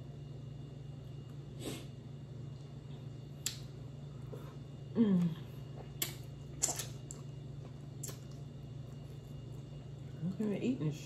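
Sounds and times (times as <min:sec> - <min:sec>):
freezer hum: 0:00.0 - 0:11.0
wet lip and finger clicks: 0:03.4 - 0:03.7
woman humming mm: 0:04.9 - 0:05.5.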